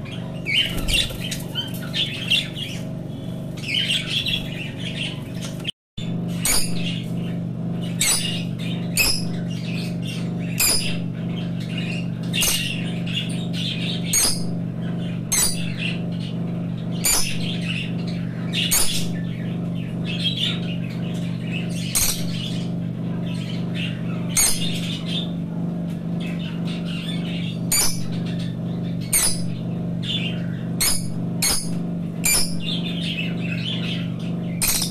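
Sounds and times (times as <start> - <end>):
lovebirds squawking: 0.0 - 5.7
steady low hum: 0.0 - 34.9
soft bird chattering: 6.3 - 34.9.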